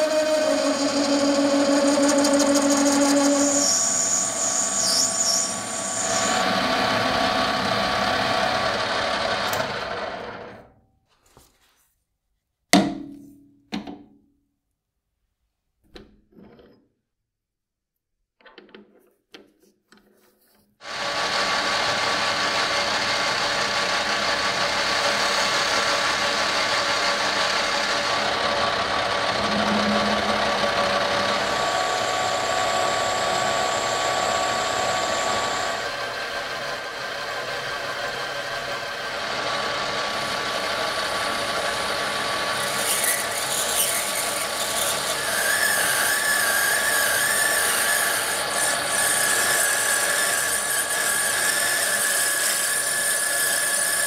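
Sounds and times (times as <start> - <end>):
lathe drilling brass: 0.0 - 10.4, 20.9 - 54.0.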